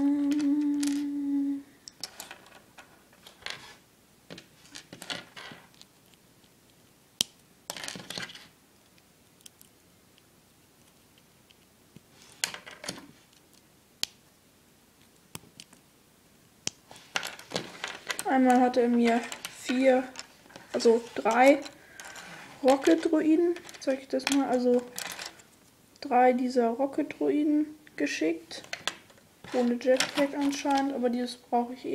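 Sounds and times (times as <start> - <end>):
person humming: 0.0 - 1.8
rustling scrapes: 2.1 - 3.8, 16.9 - 23.9, 29.4 - 30.8
plastic pieces clicking: 17.2 - 25.4, 28.5 - 30.9.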